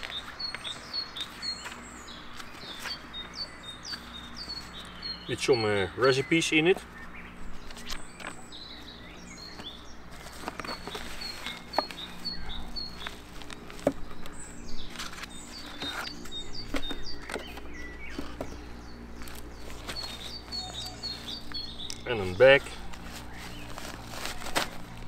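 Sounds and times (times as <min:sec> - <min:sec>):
small birds chirping: 0:00.0 - 0:25.0
cardboard box and bag rustling: 0:09.5 - 0:25.0.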